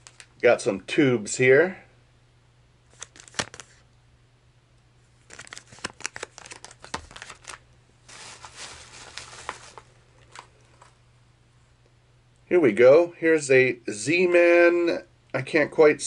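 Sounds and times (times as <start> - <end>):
plastic packaging crinkling: 0.0 - 0.4, 2.9 - 3.8, 5.2 - 11.0
plastic bag rustling: 5.2 - 11.0.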